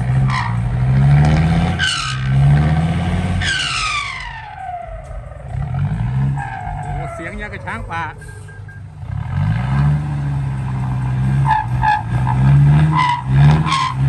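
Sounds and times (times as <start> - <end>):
truck engine revving hard: 0.0 - 14.0
high whine: 1.9 - 10.8.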